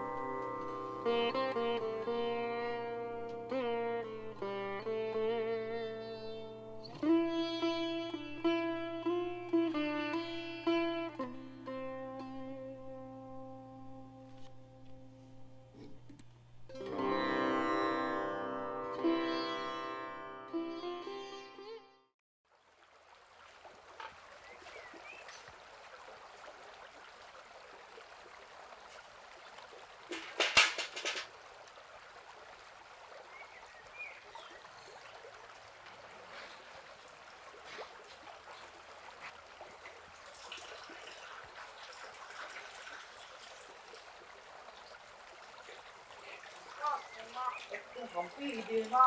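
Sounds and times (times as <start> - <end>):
water trickling into bucket: 22.5 - 49.0
loud clatter: 30.1 - 31.3.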